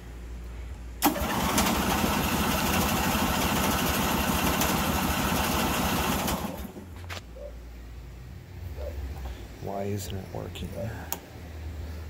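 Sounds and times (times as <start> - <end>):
lawn mower engine cranking: 1.0 - 6.8.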